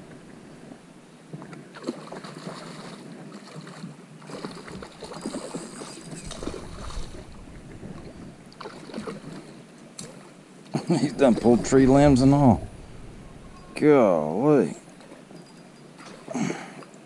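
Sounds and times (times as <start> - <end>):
stream water running: 0.0 - 17.0
small splashes and knocks: 1.4 - 10.4.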